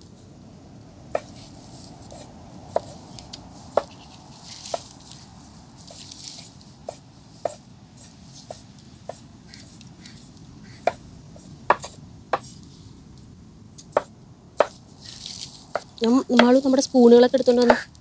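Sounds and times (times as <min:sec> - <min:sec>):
knife chopping on wooden board: 0:11.7 - 0:12.5.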